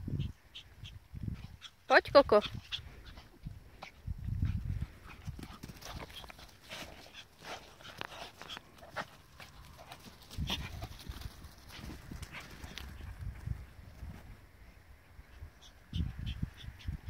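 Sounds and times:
small dogs moving on grass: 4.8s - 14.5s.

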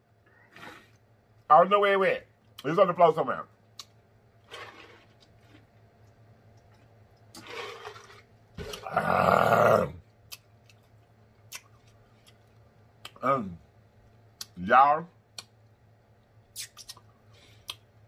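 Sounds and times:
loud rough throaty sound: 8.6s - 10.0s.

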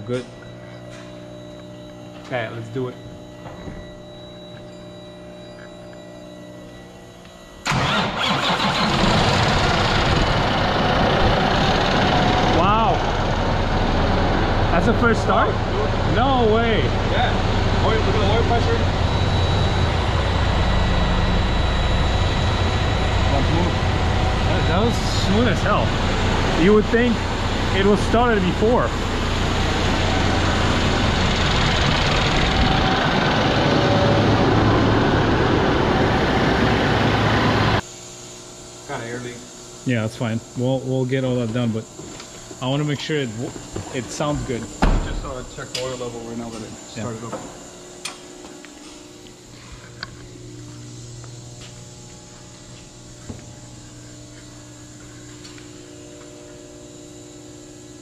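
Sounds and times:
faint hum: 0.0s - 58.0s
diesel engine starting and running: 7.6s - 37.8s.

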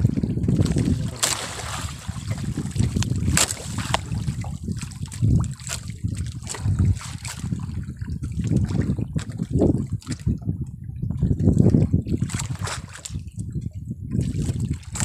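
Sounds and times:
water splashing against boat: 0.0s - 15.0s
wind buffeting microphone: 0.0s - 15.0s.

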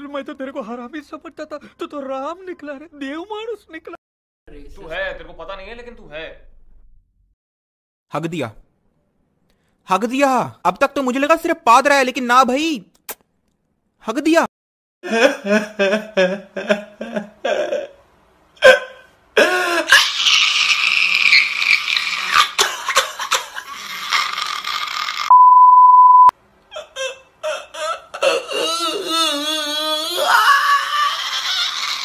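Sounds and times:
steady beep: 25.3s - 26.3s
man wailing: 28.5s - 31.5s.

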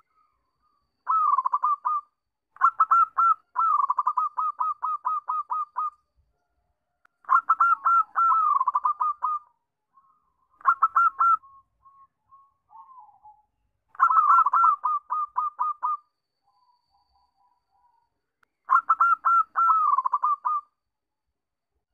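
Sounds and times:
dove cooing: 1.1s - 6.0s, 7.3s - 9.5s, 10.6s - 13.4s, 14.0s - 16.0s, 18.7s - 20.7s.

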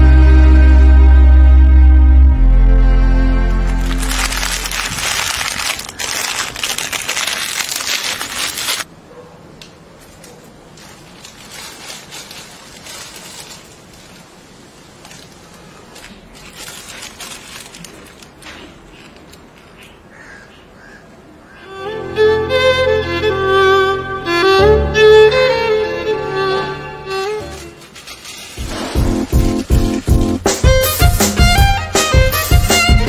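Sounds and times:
dry noodles cracking: 3.6s - 8.9s, 10.8s - 14.3s, 15.0s - 19.6s
plastic packet crinkling: 3.6s - 8.9s, 10.7s - 19.4s, 27.6s - 30.1s.

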